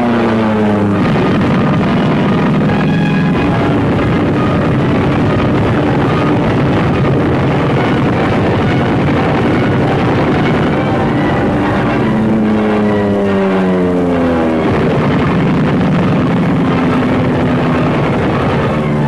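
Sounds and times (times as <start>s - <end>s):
aircraft engines roaring: 0.0s - 19.0s
dramatic orchestral music: 1.8s - 14.6s.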